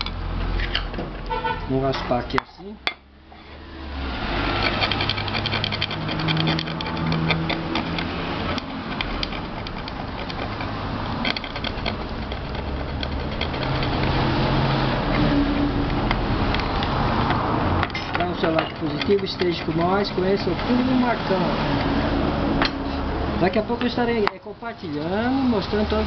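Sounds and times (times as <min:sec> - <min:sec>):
metal blade scraping metal: 0:03.3 - 0:24.1.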